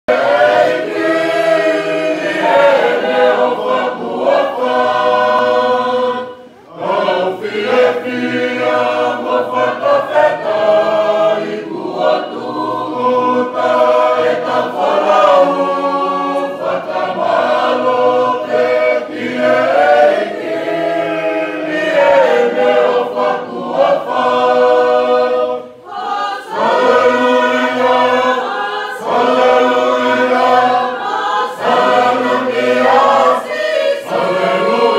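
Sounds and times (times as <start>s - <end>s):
choir singing a hymn: 0.1s - 34.9s.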